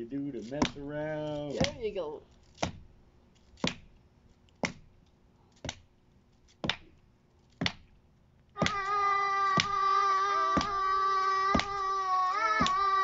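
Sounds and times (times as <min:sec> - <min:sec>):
hands clapping a steady beat: 0:06.6 - 0:07.0, 0:08.6 - 0:13.0
child singing a long high note: 0:08.6 - 0:13.0.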